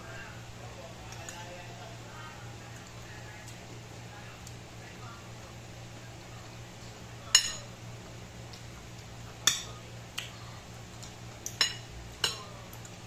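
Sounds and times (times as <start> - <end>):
metal spoon clinking on ceramic bowl: 7.3 - 7.7, 11.6 - 12.5
light spoon taps: 11.4 - 12.5.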